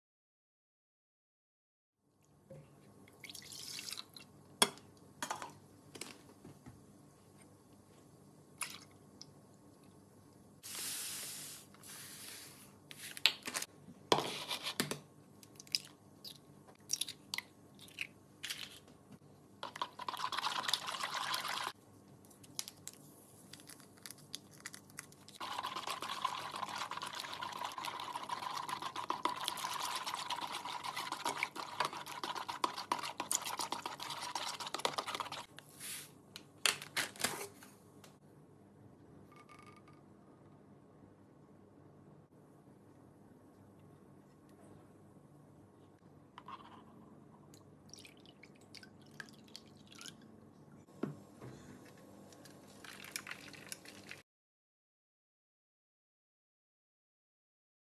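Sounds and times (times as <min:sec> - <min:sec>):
rustling or pouring: 0:23.6 - 0:36.1, 0:52.4 - 0:54.2.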